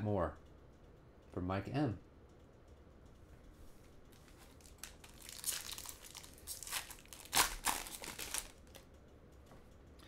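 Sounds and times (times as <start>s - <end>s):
foil wrapper crackling and ripping: 4.6s - 8.8s.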